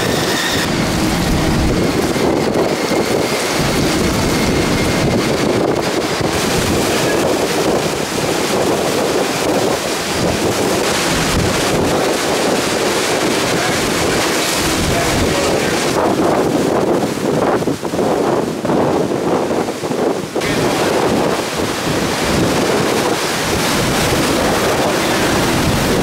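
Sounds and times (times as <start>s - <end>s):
strong gusting wind: 0.0s - 26.0s
wind buffeting microphone: 0.0s - 26.0s
driving rain: 0.6s - 16.8s, 20.4s - 26.0s.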